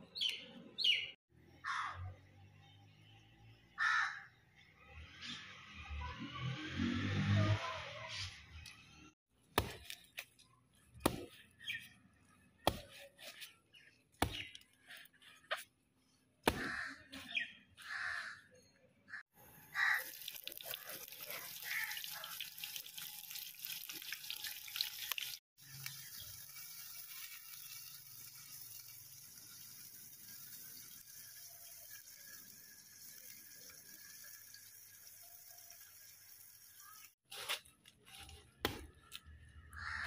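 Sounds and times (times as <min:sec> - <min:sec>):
running water hissing: 0:19.7 - 0:37.2.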